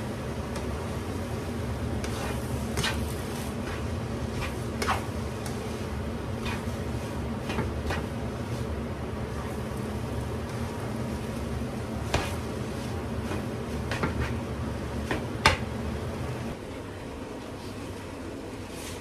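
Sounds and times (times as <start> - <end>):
steady low hum: 0.0 - 19.0
utensil scraping and knocking pan: 2.0 - 5.7.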